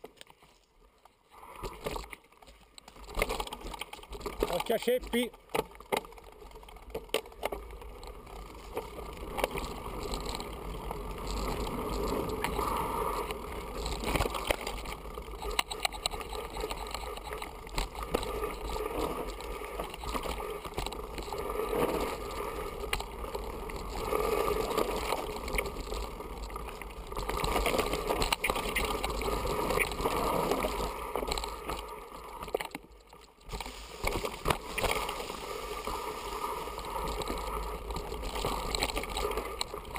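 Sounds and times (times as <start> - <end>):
bike rattling and clicking: 1.6 - 39.9
tyres rolling over dirt and stones: 1.6 - 39.9.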